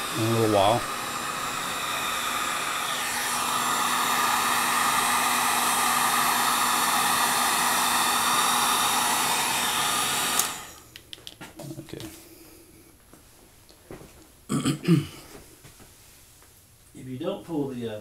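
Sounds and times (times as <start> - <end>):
heat gun blowing hot air: 0.0 - 10.9
heat gun switch click: 10.3 - 11.4.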